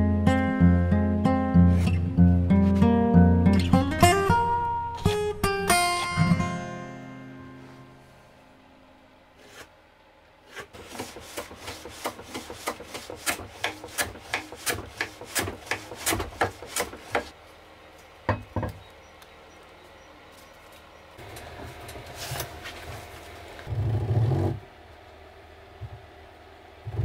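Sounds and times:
acoustic guitar music: 0.0s - 8.2s
hand plane rasping strokes: 10.5s - 17.3s.

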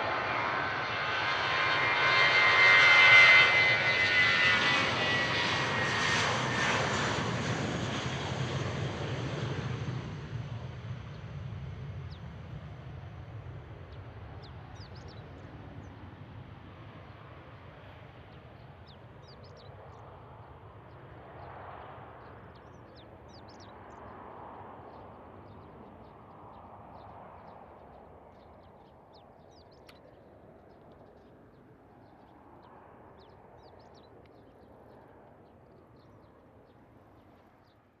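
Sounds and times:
distant jet engine rumble: 0.0s - 38.0s
small birds chirping: 1.2s - 37.9s.

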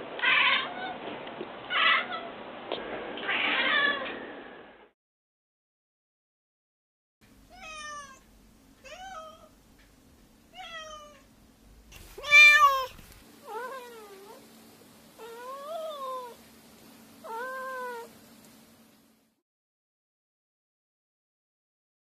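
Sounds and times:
cat meowing: 7.5s - 8.2s, 8.8s - 9.6s, 10.5s - 11.3s, 12.0s - 14.4s, 15.2s - 16.4s, 17.2s - 18.1s.

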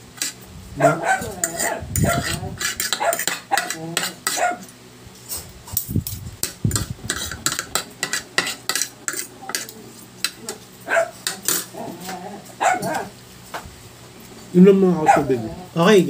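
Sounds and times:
cutlery clinking on ceramic plate: 11.2s - 11.7s.

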